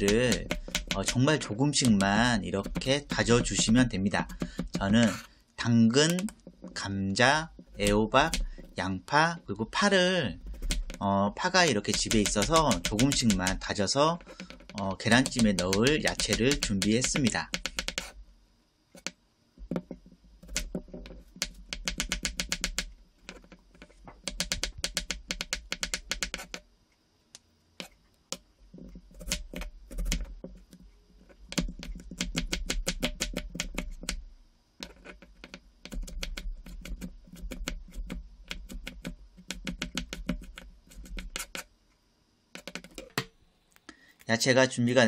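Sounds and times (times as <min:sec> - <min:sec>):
knife chopping on wooden board: 0:00.0 - 0:05.2, 0:07.7 - 0:08.8, 0:11.8 - 0:13.6, 0:14.4 - 0:18.1, 0:19.7 - 0:23.4, 0:31.5 - 0:34.2, 0:35.8 - 0:41.6.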